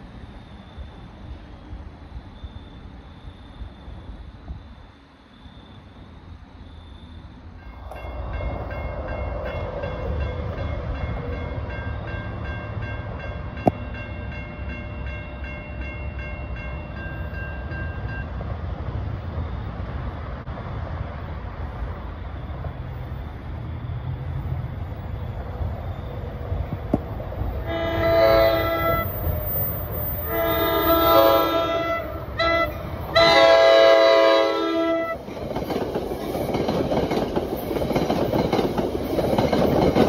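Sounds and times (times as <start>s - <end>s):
crossing warning bells ringing: 7.6s - 18.5s, 27.6s - 40.0s.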